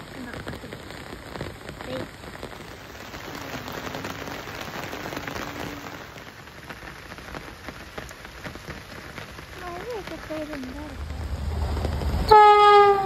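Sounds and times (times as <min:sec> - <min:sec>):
rain on an umbrella and leaves: 0:00.0 - 0:13.0.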